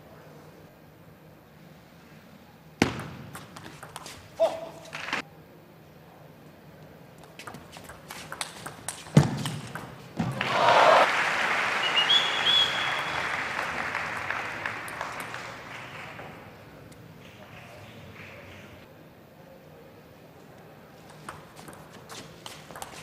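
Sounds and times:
crowd cheering and applauding: 10.3 - 16.6.

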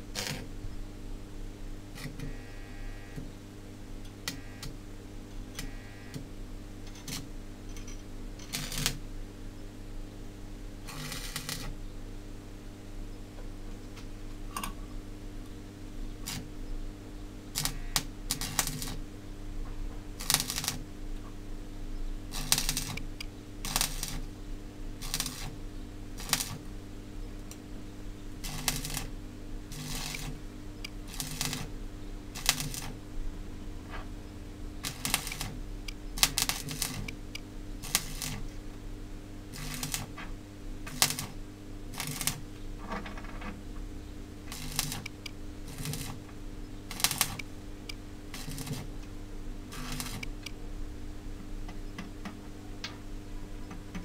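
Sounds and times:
welding arc crackles: 0.0 - 0.5, 4.2 - 4.8, 5.6 - 6.3, 6.9 - 7.3, 8.4 - 9.0, 10.9 - 11.7, 16.2 - 16.5, 17.5 - 19.0, 20.2 - 20.8, 22.3 - 24.3, 25.0 - 26.7, 28.4 - 31.7, 32.3 - 33.0, 34.8 - 38.5, 39.4 - 40.2, 40.8 - 42.5, 44.4 - 49.0, 49.7 - 50.5
steady electrical hum: 0.0 - 54.0
electrode scratching on steel: 8.4 - 9.0, 10.9 - 11.7, 17.6 - 19.0, 20.2 - 20.8, 22.3 - 24.2, 25.0 - 25.6, 26.2 - 26.6, 28.4 - 29.1, 29.7 - 30.4, 31.0 - 31.7, 32.4 - 33.0, 34.8 - 35.6, 36.2 - 38.4, 39.5 - 40.2, 40.9 - 42.4, 44.5 - 46.2, 46.9 - 47.4, 48.3 - 48.9, 49.7 - 50.4.

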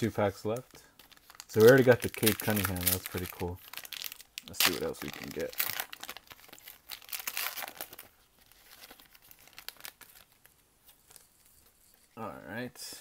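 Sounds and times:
foil wrapper tearing and crinkling: 1.0 - 10.4.

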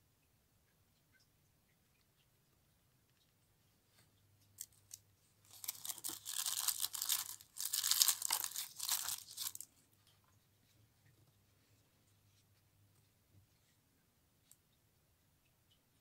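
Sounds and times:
packaging wrap crinkling: 4.6 - 9.7.

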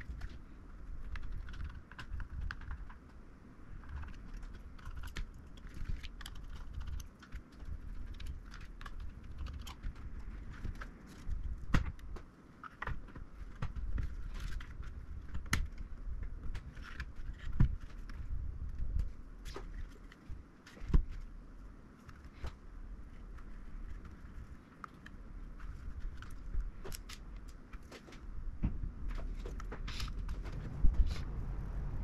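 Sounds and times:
low rumble: 30.1 - 32.0.

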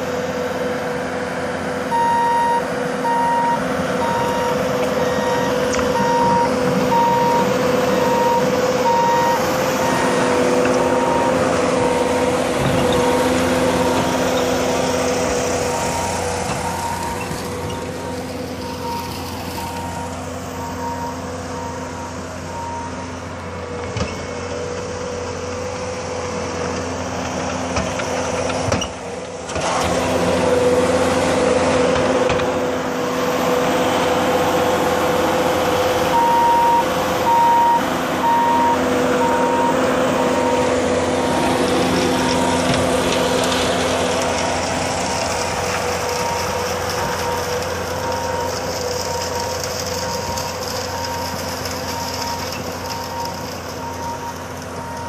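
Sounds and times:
diesel engine running under load: 0.0 - 55.0
backup alarm beeping: 1.9 - 12.1, 36.1 - 40.8.

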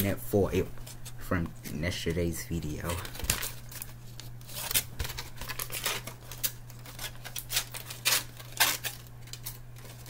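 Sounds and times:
aluminium foil crinkling: 2.8 - 10.0.

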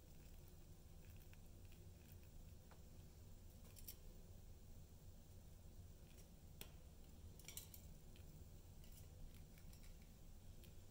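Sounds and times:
low room hum: 0.0 - 10.9.

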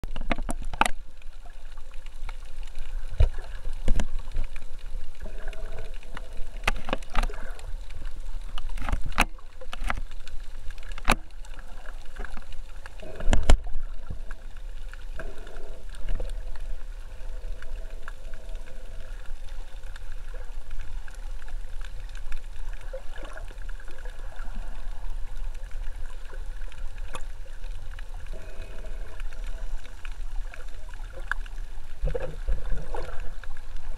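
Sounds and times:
underwater clicks and knocks: 0.0 - 1.3, 2.0 - 19.1, 27.9 - 33.9
underwater rumble of moving water: 0.0 - 33.9.

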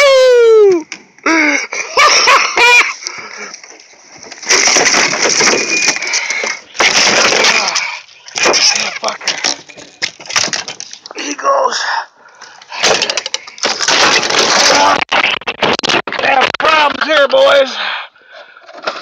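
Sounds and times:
fish thrashing in a boat: 4.3 - 11.0.

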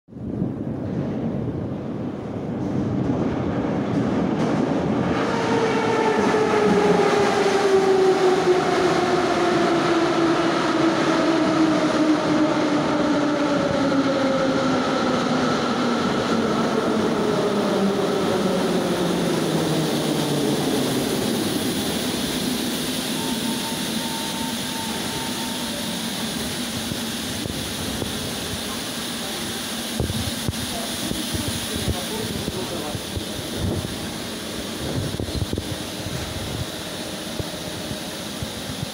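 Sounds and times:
train wheel and rail rumble: 0.1 - 38.9
train traction drive whine: 3.9 - 38.9
short steady tone: 23.0 - 26.0.

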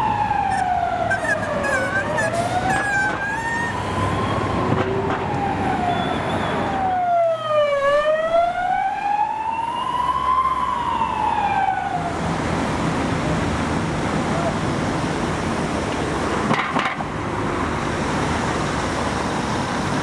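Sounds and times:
emergency siren wailing: 0.0 - 13.1
road noise: 0.0 - 20.0.

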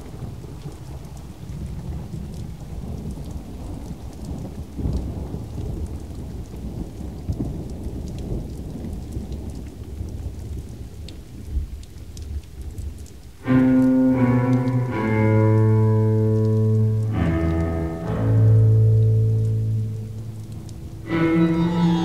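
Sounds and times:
rolling thunder: 0.0 - 11.8
patter of raindrops: 0.0 - 22.0
bowed strings: 17.9 - 22.0.

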